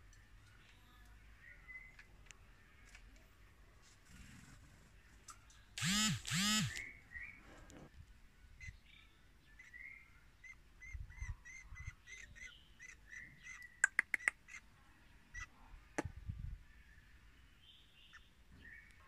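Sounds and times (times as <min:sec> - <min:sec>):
songbird chirping: 0:00.0 - 0:04.0, 0:04.9 - 0:19.0
sharp clicks: 0:05.3 - 0:06.9, 0:13.6 - 0:14.4.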